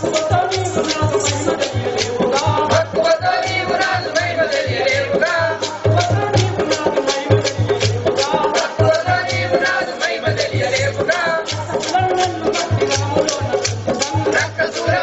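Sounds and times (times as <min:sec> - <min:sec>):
wooden clappers clicking: 0:00.0 - 0:02.5, 0:10.4 - 0:14.9
drum beat: 0:00.0 - 0:15.0.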